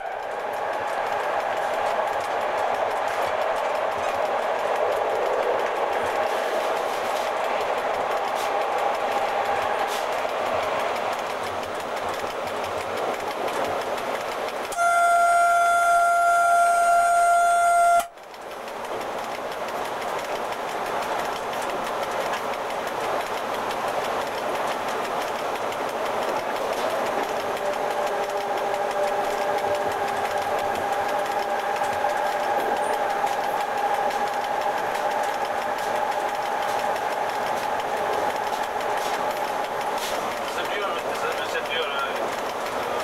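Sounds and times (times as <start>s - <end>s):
locomotive cab noise on track: 0.0s - 43.0s
locomotive horn: 14.7s - 18.1s.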